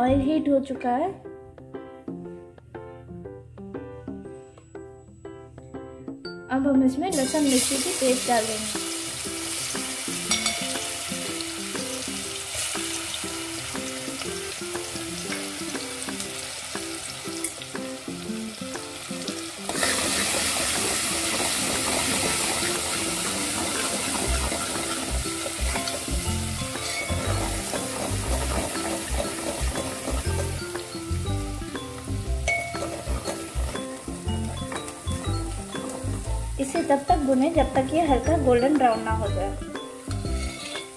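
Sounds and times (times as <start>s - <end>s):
paste sizzling in hot oil: 7.1s - 37.9s, 39.8s - 40.9s
steel ladle stirring in metal pot: 21.3s - 30.6s, 40.3s - 40.8s.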